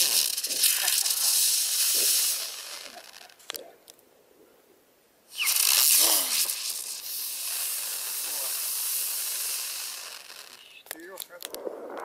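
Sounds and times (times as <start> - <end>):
firework motor hissing: 0.0 - 3.5, 5.3 - 11.0.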